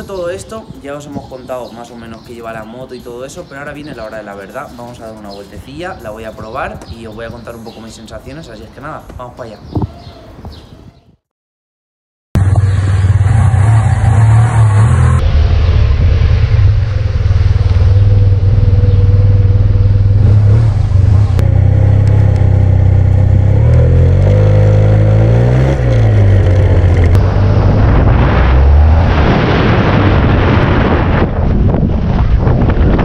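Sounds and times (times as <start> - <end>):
wind noise on microphone: 5.0 - 11.3, 25.5 - 33.0
scooter engine running: 17.2 - 27.6.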